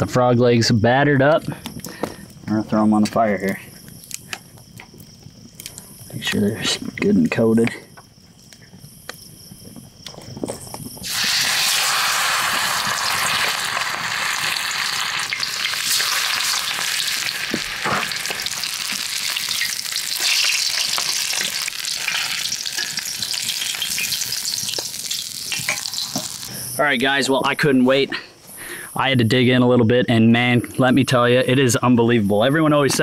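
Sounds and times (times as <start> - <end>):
crickets chirping: 0.0 - 33.0
oil sizzling in a skillet: 11.0 - 26.7.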